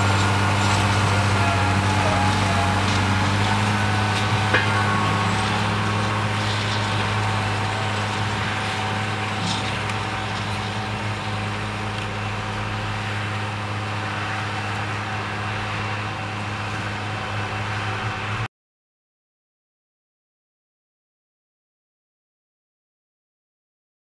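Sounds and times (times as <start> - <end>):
tractor engine running under load: 0.0 - 18.5.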